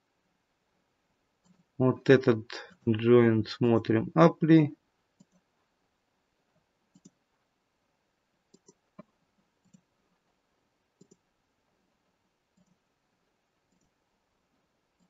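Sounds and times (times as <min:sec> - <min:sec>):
computer mouse clicks: 0:05.2 - 0:05.5, 0:06.9 - 0:07.2, 0:08.5 - 0:09.9, 0:11.0 - 0:11.2, 0:12.5 - 0:12.8, 0:13.7 - 0:14.0.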